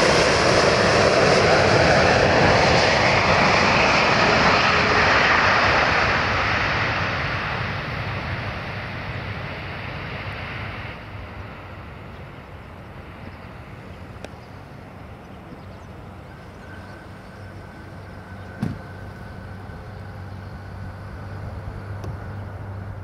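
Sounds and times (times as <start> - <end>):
jet engines rumbling: 0.0 - 23.0.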